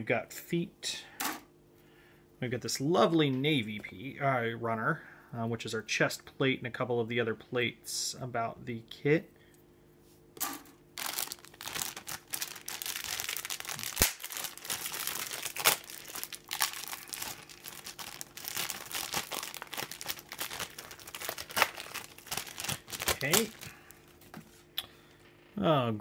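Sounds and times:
plastic bags crinkling: 11.0 - 24.4.

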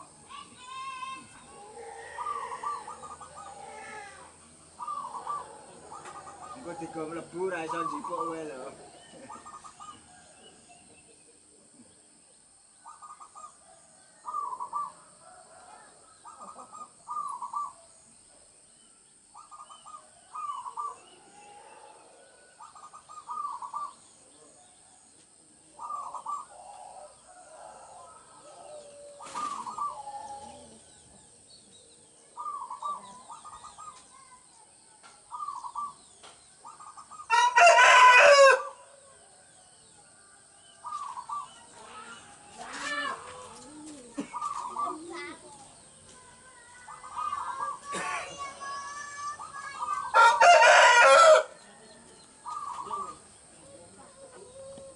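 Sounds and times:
loud bird call: 0.0 - 10.7, 19.3 - 24.3, 25.8 - 31.1, 40.6 - 45.4, 46.4 - 51.7
doves cooing: 0.0 - 12.2, 12.8 - 18.2, 19.4 - 34.3, 35.2 - 40.0, 40.7 - 54.9.

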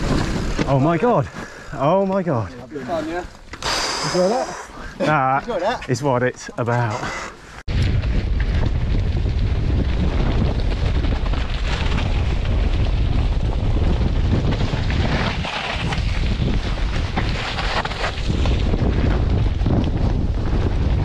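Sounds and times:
bike tyre rumble and rattle: 0.0 - 6.2, 7.0 - 21.0
wind buffeting microphone: 7.6 - 21.0.

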